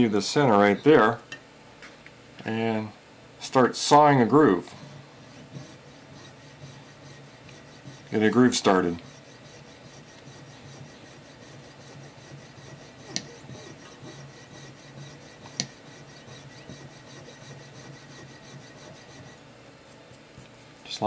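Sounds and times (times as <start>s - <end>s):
saw rasping metal: 5.2s - 19.5s.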